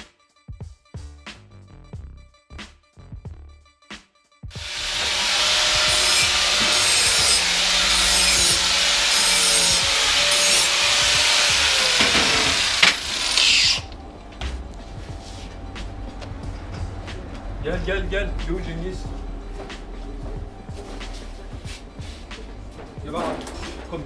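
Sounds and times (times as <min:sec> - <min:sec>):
angle grinder grinding metal: 0:04.5 - 0:14.0.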